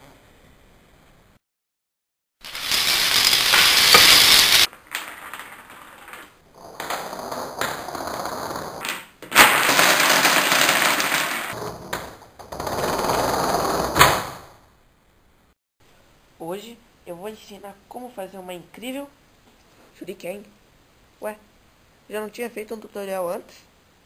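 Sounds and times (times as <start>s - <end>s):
dominoes clattering: 2.4s - 11.6s
domino tower collapsing: 2.4s - 14.4s.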